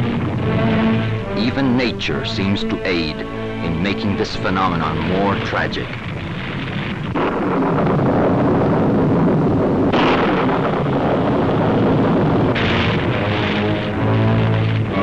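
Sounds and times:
crackling rumbling noise: 0.0s - 15.0s.

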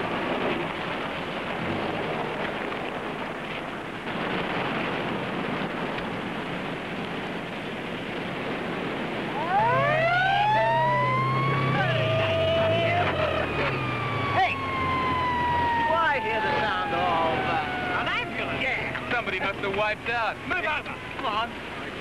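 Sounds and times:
steady rushing noise: 0.0s - 22.0s
siren wailing: 9.3s - 19.6s.

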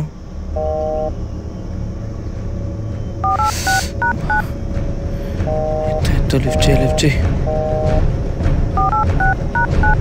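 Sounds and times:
low background rumble: 0.0s - 10.0s
phone keypad dialing beeps: 3.2s - 4.4s, 8.8s - 10.0s.

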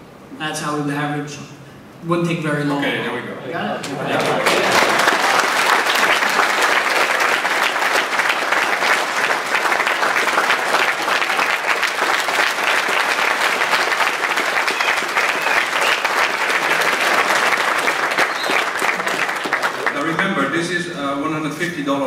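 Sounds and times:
audience applauding: 3.8s - 20.7s.

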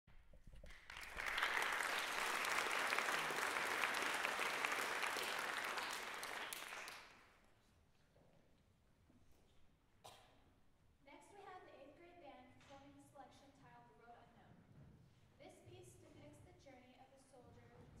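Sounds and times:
audience applauding: 0.6s - 7.2s.

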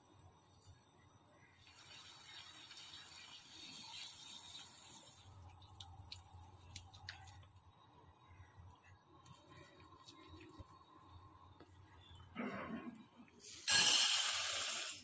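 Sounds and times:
sauce stirring hiss: 1.6s - 6.8s, 13.4s - 15.0s.

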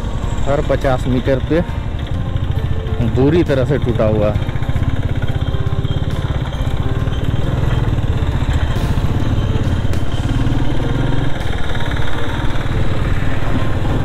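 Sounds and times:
motorcycle engine running: 0.0s - 14.0s.

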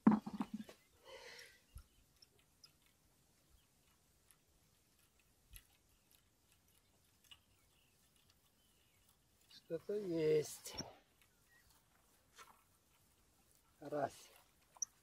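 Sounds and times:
faint clicks: 0.7s - 9.9s.

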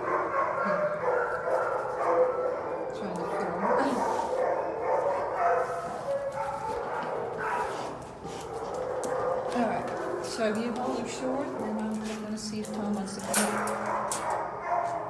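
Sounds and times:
dogs barking and yipping: 0.0s - 15.0s.

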